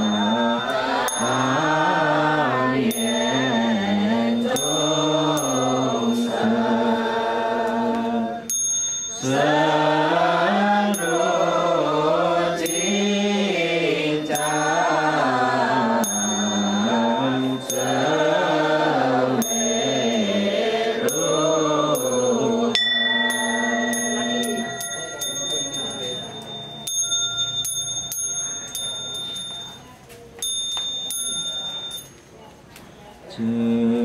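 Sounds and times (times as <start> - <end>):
small high-pitched bell strikes: 0.0 - 1.6, 2.9 - 3.8, 4.4 - 6.3, 8.5 - 9.3, 10.9 - 11.6, 12.6 - 13.1, 16.0 - 18.2, 19.4 - 20.3, 21.0 - 32.2
men chanting: 0.0 - 8.4, 9.2 - 26.6.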